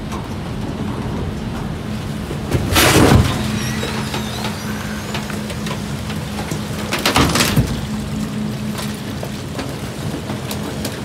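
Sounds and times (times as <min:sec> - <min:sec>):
garbage truck engine humming: 0:00.0 - 0:11.0
compactor mechanism rushing noise: 0:01.6 - 0:10.9.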